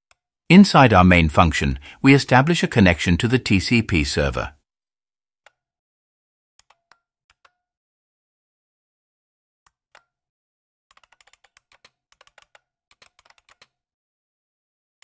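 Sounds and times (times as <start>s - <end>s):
faint keyboard typing: 10.9s - 13.8s.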